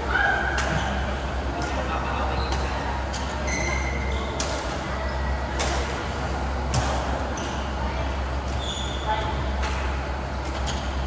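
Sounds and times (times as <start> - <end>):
steady low hum: 0.0 - 11.0
shoes squeaking on court: 2.3 - 4.4, 8.5 - 9.2.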